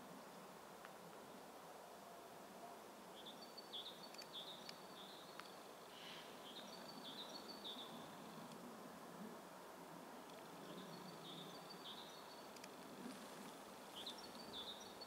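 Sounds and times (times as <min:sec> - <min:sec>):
small bird chirping: 0:03.2 - 0:08.1, 0:10.6 - 0:15.0
faint clicks: 0:04.1 - 0:05.6, 0:08.4 - 0:08.6, 0:10.2 - 0:10.5, 0:12.5 - 0:13.6.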